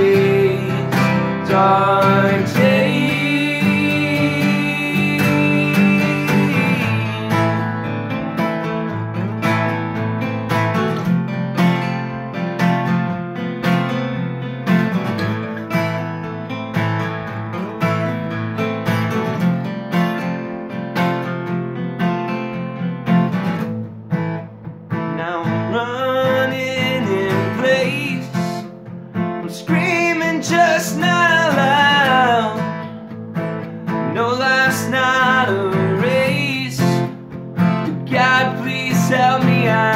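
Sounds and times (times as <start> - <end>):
man singing: 0.0 - 8.0, 25.1 - 28.8, 29.4 - 33.0, 33.9 - 39.9
acoustic guitars strumming: 0.0 - 39.9.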